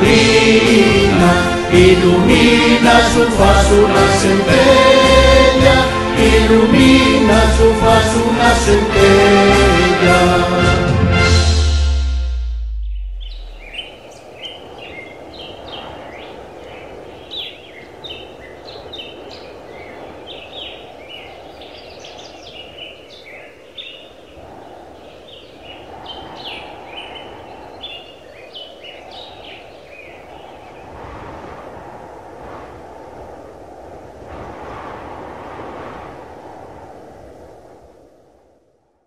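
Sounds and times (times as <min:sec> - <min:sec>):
orchestral chord: 0:00.3 - 0:13.3
birds chirping and calling: 0:12.9 - 0:30.9.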